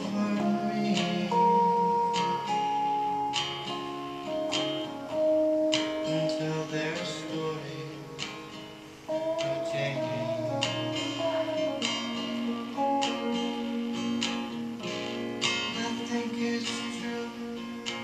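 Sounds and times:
acoustic guitar strumming: 0:00.0 - 0:18.0
electric guitar bending notes: 0:00.0 - 0:18.0.

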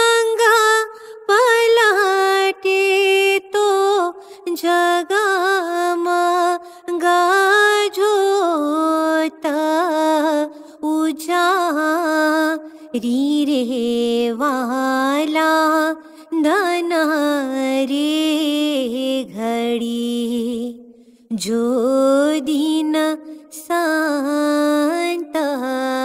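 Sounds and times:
woman singing a hymn: 0:21.4 - 0:26.0.

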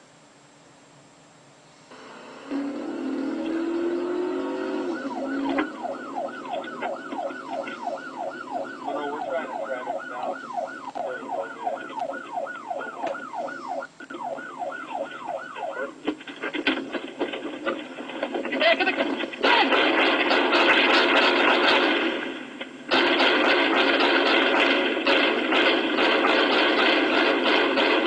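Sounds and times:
police siren yelping: 0:01.9 - 0:17.8, 0:22.9 - 0:28.0.

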